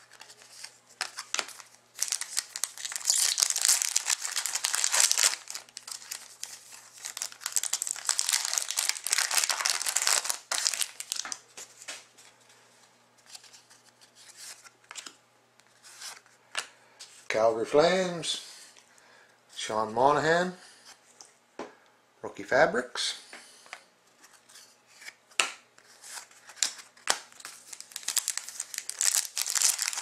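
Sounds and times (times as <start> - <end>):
cards rustling and clicking: 0.0 - 12.3, 23.7 - 30.0
foil wrapper tearing and crinkling: 1.2 - 11.4, 26.5 - 30.0.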